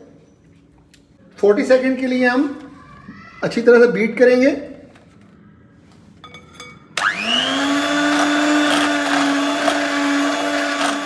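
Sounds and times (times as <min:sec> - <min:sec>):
electric hand mixer whining: 0:07.0 - 0:11.0.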